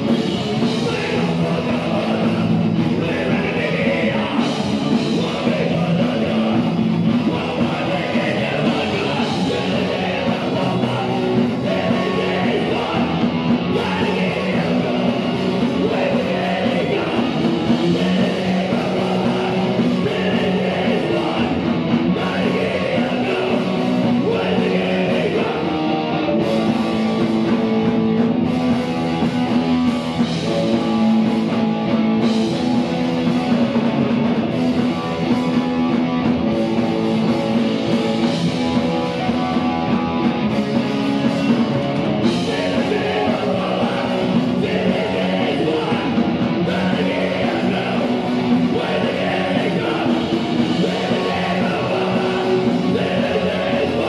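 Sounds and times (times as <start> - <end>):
rock band playing live: 0.0 - 54.0
person singing: 0.4 - 26.7, 42.2 - 54.0.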